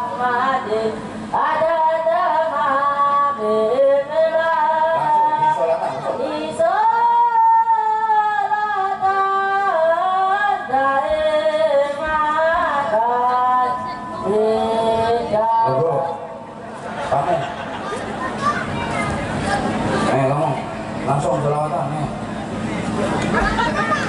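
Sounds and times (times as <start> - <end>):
boy singing through microphone: 0.0 - 16.4.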